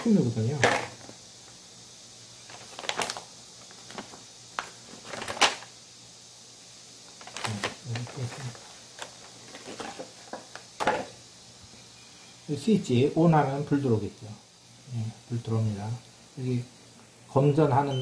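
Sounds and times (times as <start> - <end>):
paper rustling and crinkling: 2.4 - 5.7, 7.2 - 11.0
plastic blister pack handled: 2.4 - 5.7, 7.1 - 10.7.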